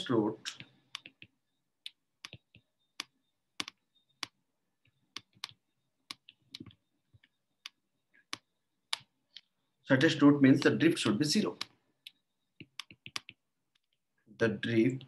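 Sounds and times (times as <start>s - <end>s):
stylus tapping on glass screen: 1.0s - 4.4s, 10.5s - 13.9s.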